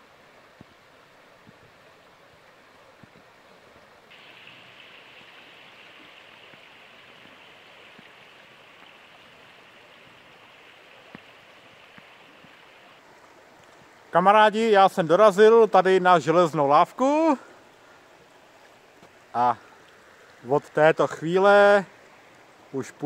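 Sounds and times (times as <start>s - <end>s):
river rushing: 0.0s - 23.0s
bright hiss: 4.1s - 7.0s.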